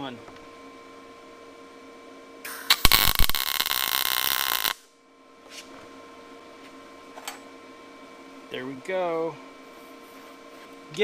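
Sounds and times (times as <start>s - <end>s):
welder arc popping and crackling: 2.5s - 4.8s.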